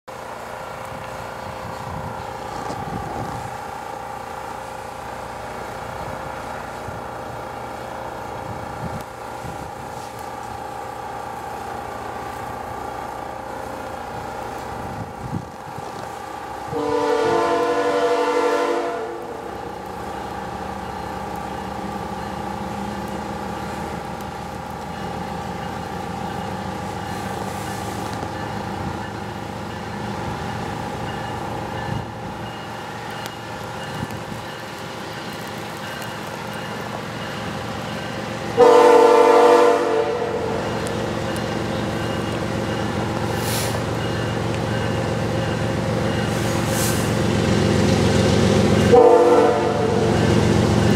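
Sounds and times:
diesel locomotive running: 0.1 - 50.9
locomotive air horn blast: 16.7 - 19.5, 38.6 - 40.6, 48.9 - 50.1.

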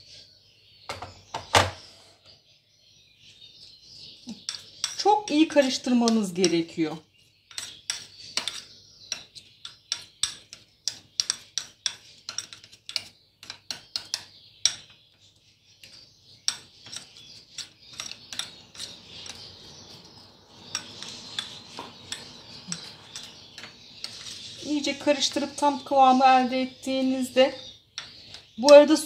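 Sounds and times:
spoon scraping: 3.6 - 14.9, 15.8 - 25.9
spoon tapping against bowl: 4.3 - 5.0, 7.5 - 15.0, 15.8 - 24.4.

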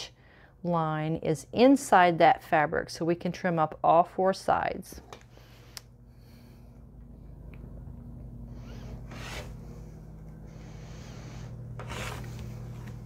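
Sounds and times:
rotary cutter slicing fabric: 8.6 - 9.6, 11.8 - 13.0.

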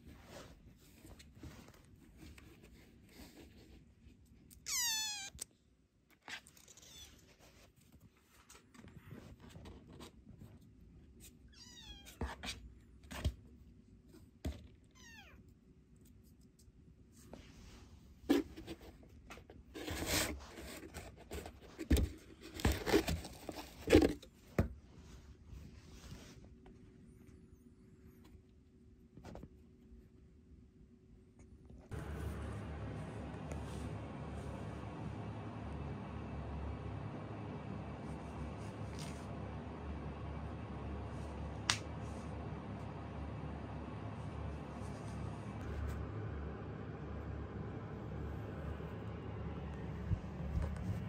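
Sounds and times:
kitten meowing: 4.5 - 5.5, 11.5 - 12.2, 15.0 - 15.4.

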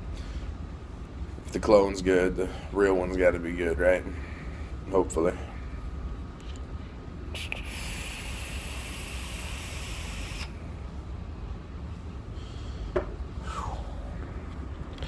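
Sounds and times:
vape coil hissing: 7.4 - 10.6.

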